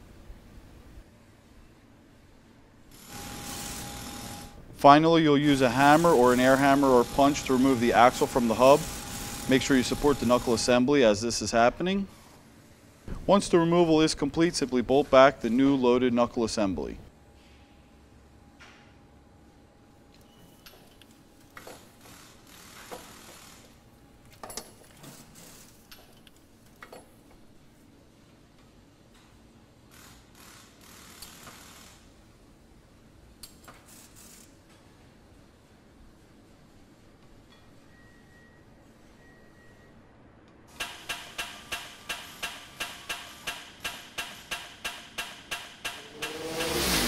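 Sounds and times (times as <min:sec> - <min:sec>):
ratchet tool metallic clicks: 0:40.8 - 0:47.0.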